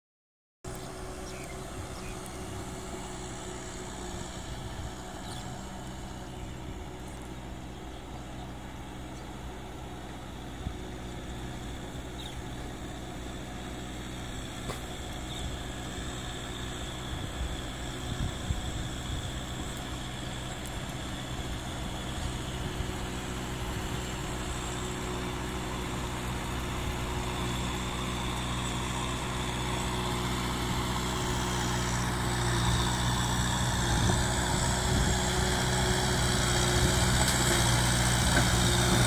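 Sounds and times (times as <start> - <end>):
distant tractor diesel engine: 0.7 - 39.0.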